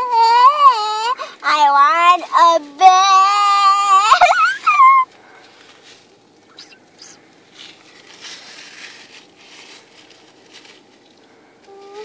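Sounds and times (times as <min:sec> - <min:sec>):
low background noise: 0:00.0 - 0:12.0
plastic pellets rustling in bag: 0:07.5 - 0:11.2.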